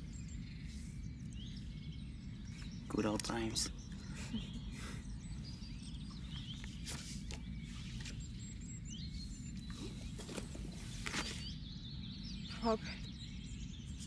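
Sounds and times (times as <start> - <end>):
small birds chirping: 0.0 - 14.0
soft rustles: 6.2 - 8.5, 9.2 - 11.5.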